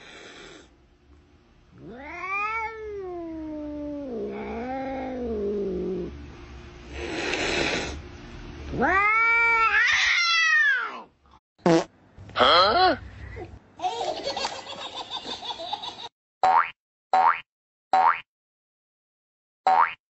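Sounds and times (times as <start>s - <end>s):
cat yowling: 1.8s - 5.7s, 8.7s - 11.1s.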